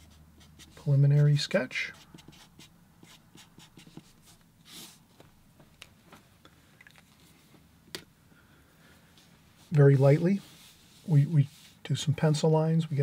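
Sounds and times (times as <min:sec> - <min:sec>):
marker writing on paper: 0:00.0 - 0:00.8, 0:01.9 - 0:04.9.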